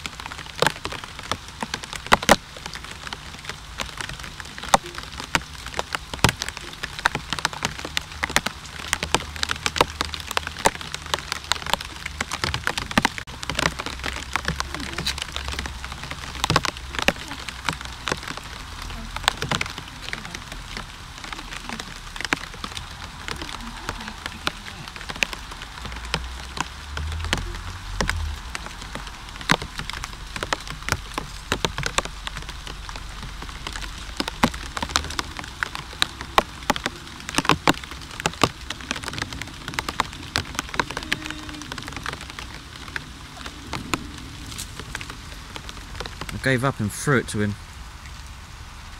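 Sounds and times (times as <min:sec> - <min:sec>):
rain falling: 0:00.0 - 0:48.9
sharp raindrop strikes: 0:00.0 - 0:48.9.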